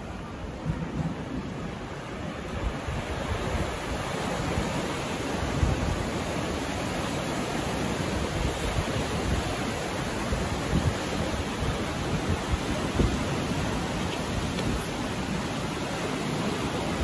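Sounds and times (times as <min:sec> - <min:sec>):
whitewater rapids rushing: 0:01.3 - 0:17.0.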